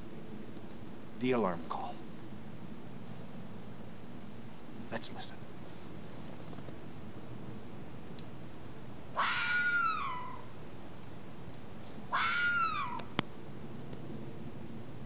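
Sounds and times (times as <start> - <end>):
meow-like animal calls: 9.1 - 10.5, 12.1 - 13.2.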